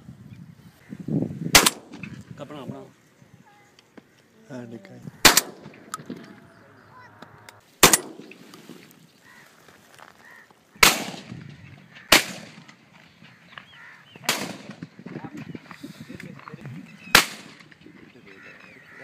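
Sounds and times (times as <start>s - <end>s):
sharp gunshots: 1.5s - 2.1s, 5.2s - 6.4s, 7.8s - 8.5s, 10.8s - 11.4s, 12.1s - 12.8s, 14.2s - 14.9s, 17.1s - 17.7s.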